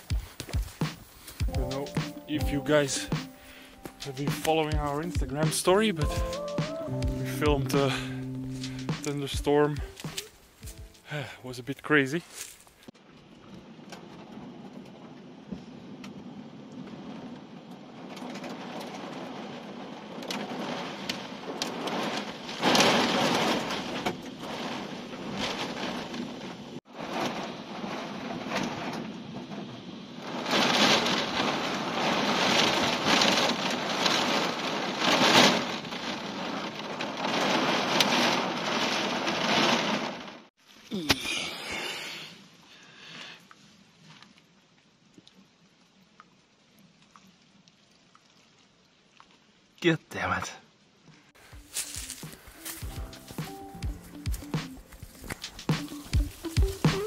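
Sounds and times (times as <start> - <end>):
heavy rain pouring: 1.4 - 10.2, 16.8 - 43.3, 51.7 - 57.0.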